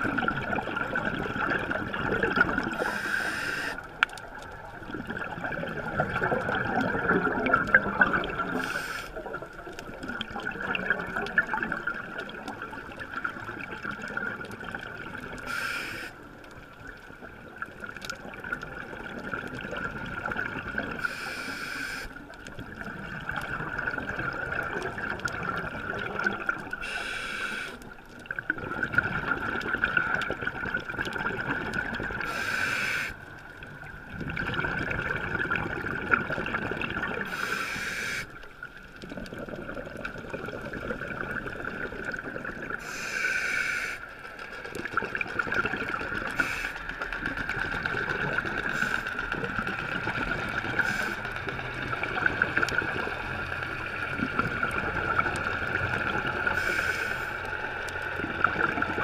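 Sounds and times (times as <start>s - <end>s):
bubbling exhalation: 0.0s - 3.0s, 4.9s - 8.6s, 34.2s - 37.6s, 39.0s - 43.0s
hissing regulator inhalations: 2.8s - 3.8s, 8.5s - 9.2s, 15.4s - 16.2s, 21.0s - 22.2s, 26.8s - 27.8s, 32.2s - 33.2s, 37.3s - 38.4s, 42.8s - 44.1s, 46.3s - 47.0s, 48.6s - 49.3s, 50.8s - 51.4s, 56.6s - 57.5s.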